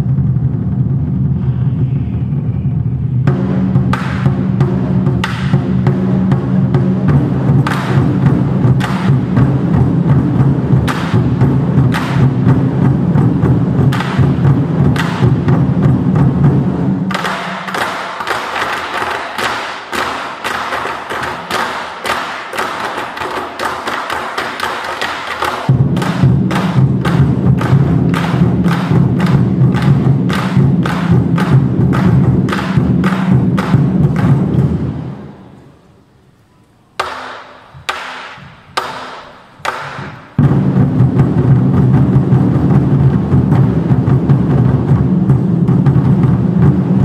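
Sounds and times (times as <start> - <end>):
large drums rumbling: 0.0 - 19.7, 25.5 - 35.4, 39.5 - 47.0
sharp accented drum strikes: 3.2 - 35.5, 37.0 - 47.0.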